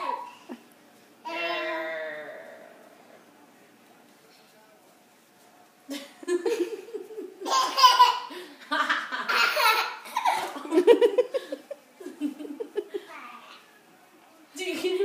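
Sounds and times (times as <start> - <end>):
toddler laughing: 7.4 - 8.4, 9.2 - 10.7.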